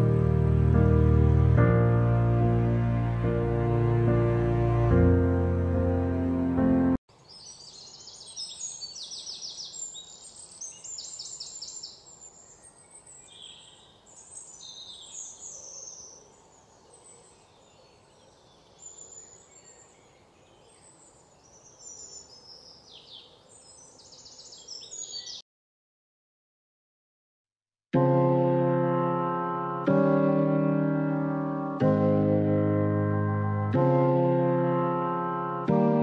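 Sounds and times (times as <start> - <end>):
songbirds chirping: 7.1 - 25.4.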